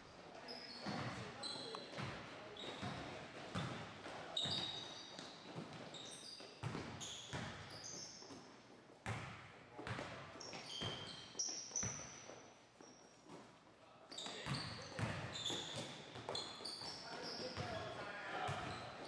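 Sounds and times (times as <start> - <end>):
sneaker squeaks: 0.4 - 19.0
basketball bouncing on hardwood: 3.5 - 3.8, 9.0 - 10.2.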